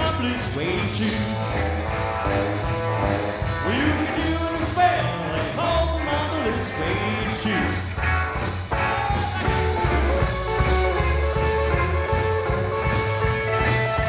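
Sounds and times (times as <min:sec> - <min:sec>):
drums: 0:00.0 - 0:14.0
electric guitar lead: 0:00.0 - 0:14.0
upright bass walking: 0:00.0 - 0:14.0.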